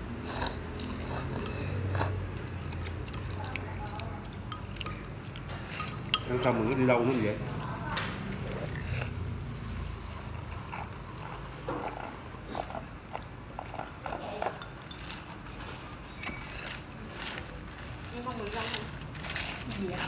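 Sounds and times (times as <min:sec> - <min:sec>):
low hum of eatery: 0:00.0 - 0:20.0.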